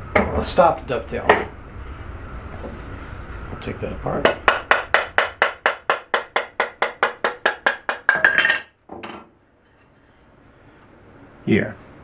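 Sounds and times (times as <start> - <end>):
mallet tapping wood: 4.2 - 8.3.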